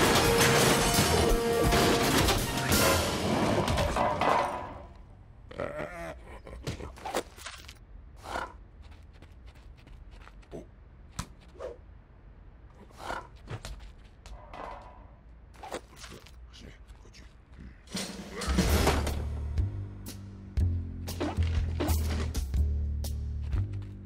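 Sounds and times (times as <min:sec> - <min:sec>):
cartoon bear grunting: 0:05.4 - 0:07.2
footsteps: 0:08.7 - 0:11.6, 0:13.4 - 0:18.1.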